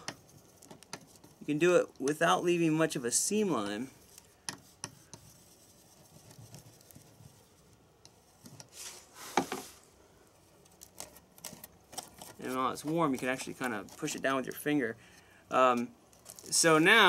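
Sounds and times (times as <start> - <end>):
rustle: 8.7 - 9.9.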